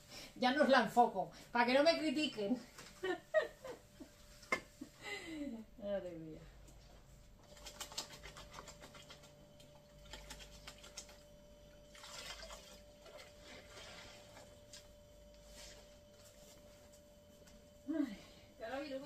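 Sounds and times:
faint steady whine: 0:08.7 - 0:19.0
wet mop swishing on tiled floor: 0:12.2 - 0:17.5.

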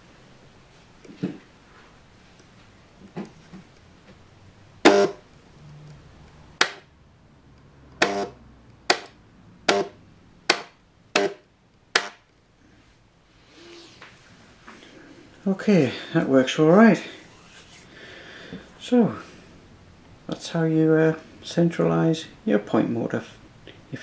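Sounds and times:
point motor sharp clacks: 0:08.0 - 0:08.3.

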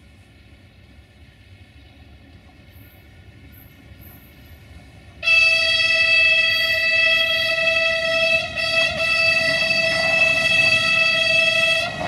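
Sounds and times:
train horn blast: 0:05.2 - 0:12.0.

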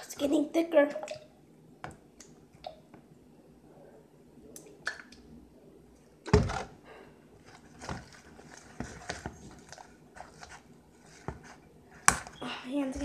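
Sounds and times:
slime squishing in plastic bowl: 0:07.4 - 0:13.0.

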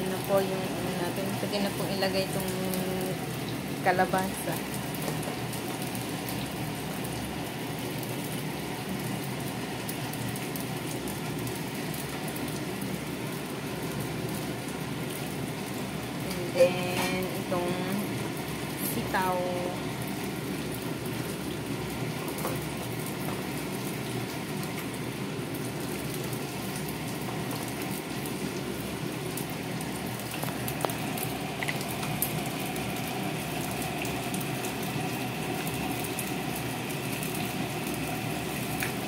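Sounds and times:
fish frying in oil: 0:00.0 - 0:39.0
pot boiling: 0:00.0 - 0:39.0.

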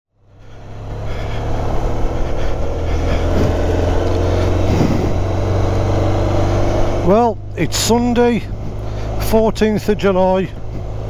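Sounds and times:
wind and road noise: 0:00.1 - 0:11.0
motorcycle engine running: 0:00.2 - 0:11.0.

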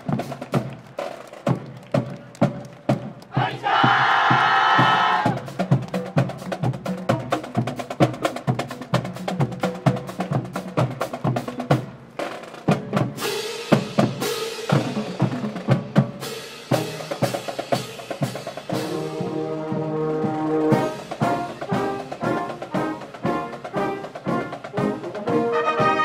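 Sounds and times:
snare drum rolls: 0:00.0 - 0:08.6
marching bass drums: 0:00.0 - 0:26.0.

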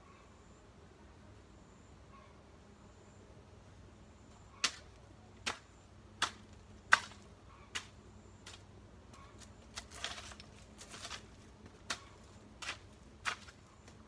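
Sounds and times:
rustling scuffle: 0:09.2 - 0:14.0.

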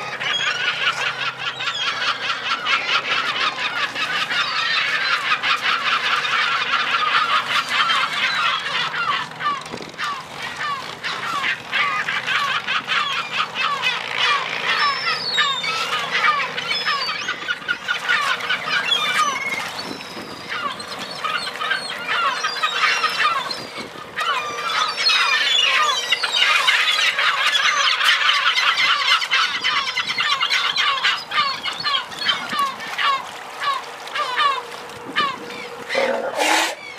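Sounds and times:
gulls calling: 0:00.0 - 0:36.9.

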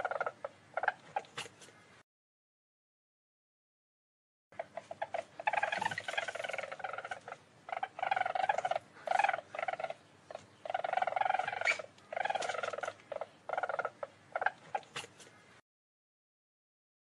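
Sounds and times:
weasel trilling calls: 0:00.0 - 0:01.9, 0:04.6 - 0:15.5.

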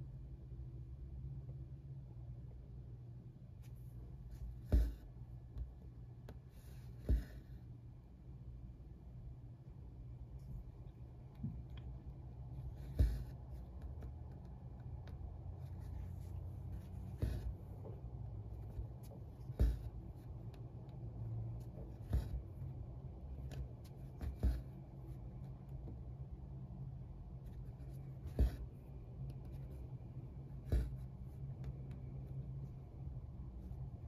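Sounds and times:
needle popping through fabric: 0:04.5 - 0:07.4.

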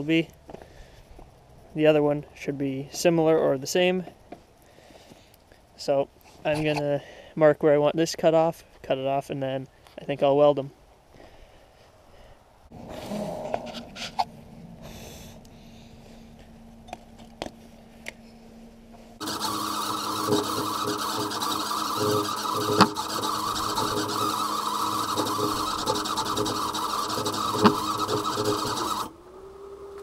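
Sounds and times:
faint steady hum: 0:10.6 - 0:30.0
welder arc crackling: 0:19.2 - 0:29.1.

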